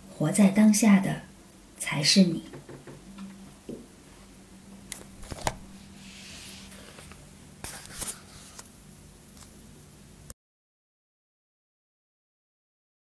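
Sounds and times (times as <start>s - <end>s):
low hum and hiss: 0.0s - 10.4s.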